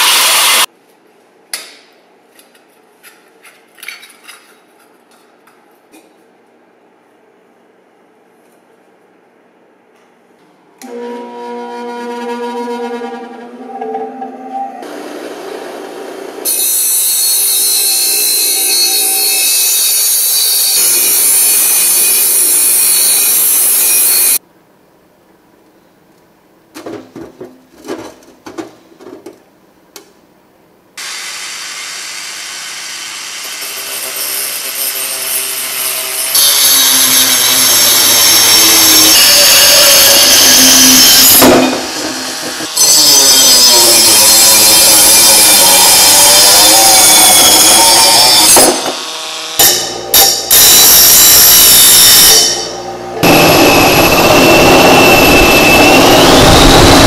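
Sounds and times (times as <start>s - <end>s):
bench grinder grinding metal: 31.8s - 54.8s
rotary tool cutting metal: 31.9s - 53.5s.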